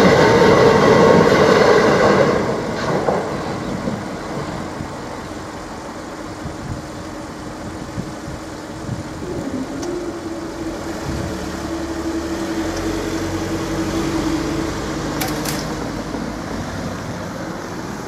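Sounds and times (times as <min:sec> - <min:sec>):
car engines running: 0:02.4 - 0:18.0
barrier motors humming: 0:04.0 - 0:18.0
sharp clicks: 0:15.2 - 0:15.8.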